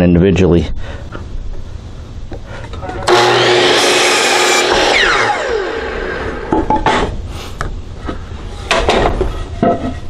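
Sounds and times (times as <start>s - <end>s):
miter saw cutting wood: 2.9s - 6.6s
saw blade spinning down: 3.0s - 6.6s.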